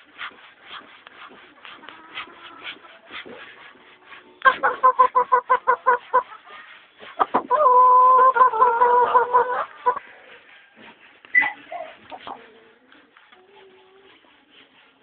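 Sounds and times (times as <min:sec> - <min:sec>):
rooster clucking: 0:04.4 - 0:14.3.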